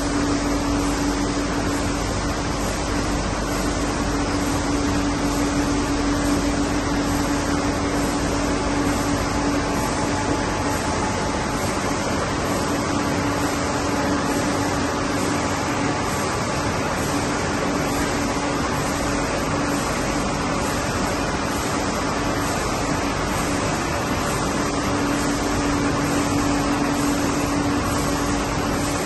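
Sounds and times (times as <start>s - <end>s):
printing press whirring: 0.0s - 29.0s.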